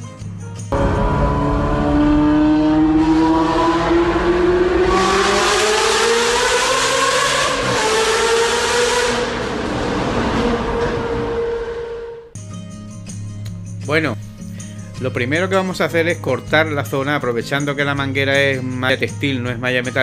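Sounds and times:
sports car engine revving: 0.7 - 12.3
loud rushing noise: 0.8 - 12.3.

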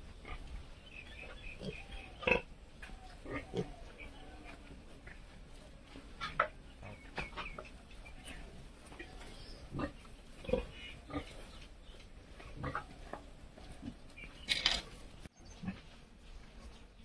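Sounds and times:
high piglet call: 1.1 - 4.7
piglets grunting: 1.4 - 4.7, 8.9 - 11.6, 12.5 - 14.0.

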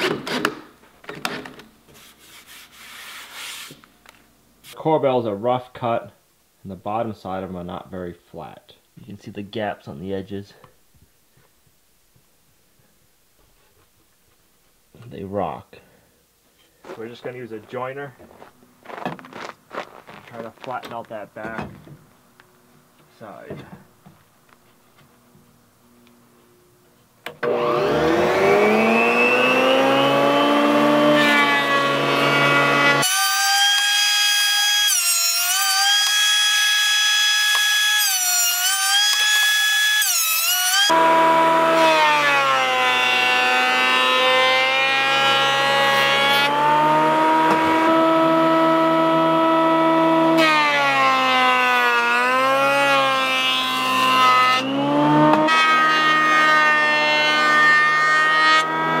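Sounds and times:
jointer whining while cutting wood: 27.4 - 59.0.

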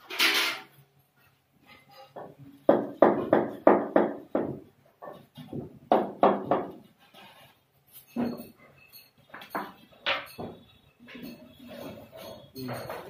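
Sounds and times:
knocks on tile panel: 5.5 - 6.8.

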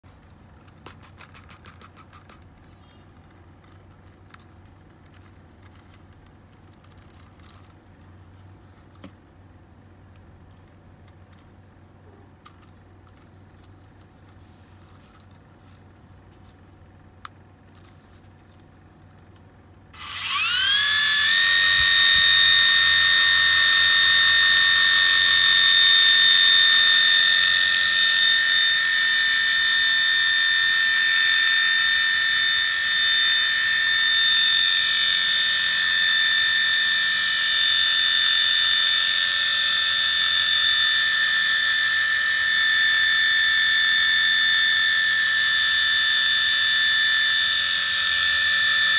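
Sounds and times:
toy helicopter rotors whining: 20.0 - 48.9.

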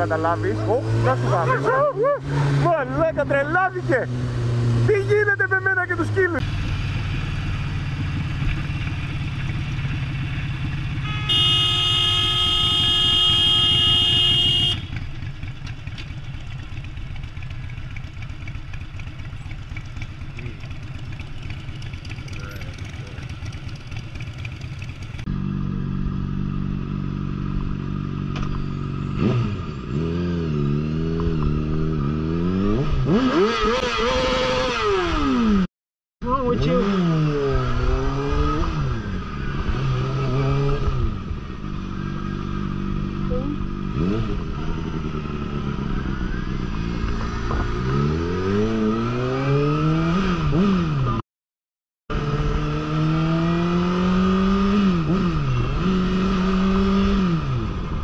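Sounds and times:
motorcycle engine running: 0.0 - 35.6
motorcycle engine revving: 0.0 - 51.2, 52.1 - 58.0
long car horn blast: 11.0 - 15.0.

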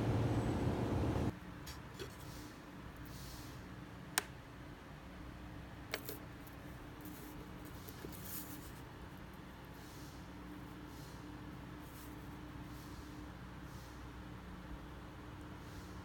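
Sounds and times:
faint steady hum: 0.0 - 1.4.

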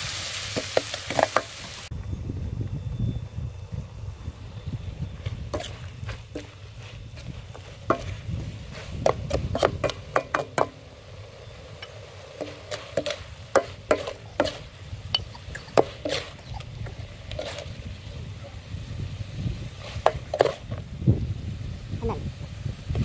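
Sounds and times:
metal ladle clinking and scraping wok: 11.4 - 17.8.

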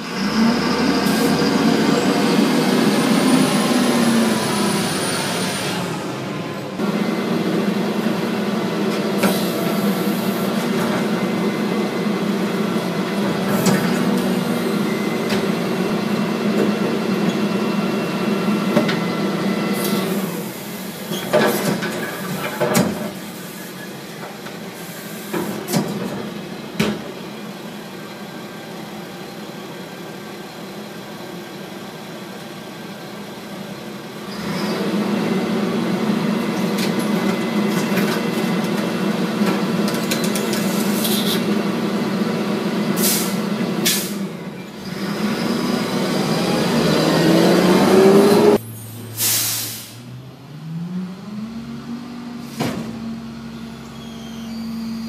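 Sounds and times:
garbage truck diesel engine: 0.0 - 55.0.

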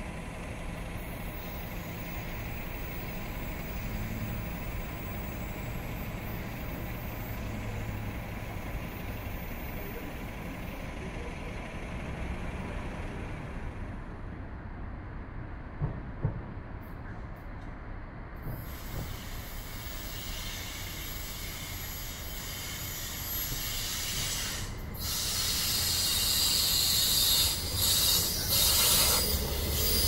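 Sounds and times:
distant diesel train engine: 0.0 - 30.0.

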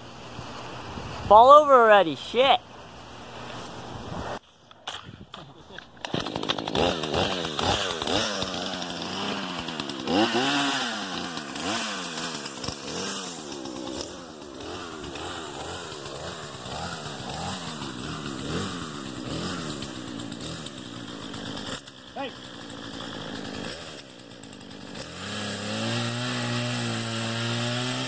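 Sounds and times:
chainsaw revving: 6.0 - 28.0.

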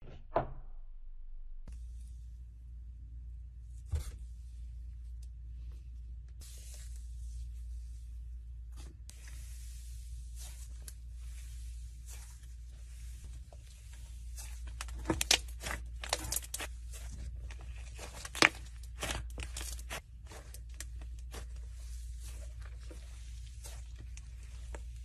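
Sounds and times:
slime crackling and tearing: 13.8 - 25.0.

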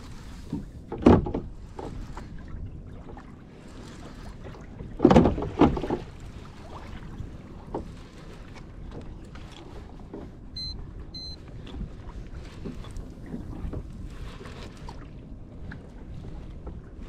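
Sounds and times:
water lapping against kayak hull: 0.0 - 17.0
wind on microphone: 0.0 - 17.0
thumps on kayak: 0.5 - 2.0, 4.9 - 6.1.

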